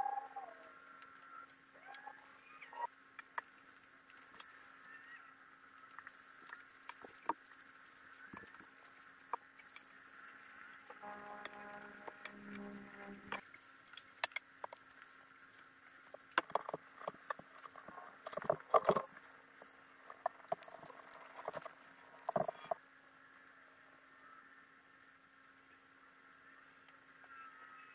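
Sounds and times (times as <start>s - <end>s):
faint steady hum: 0.0s - 27.9s
pitched tone: 11.0s - 13.4s.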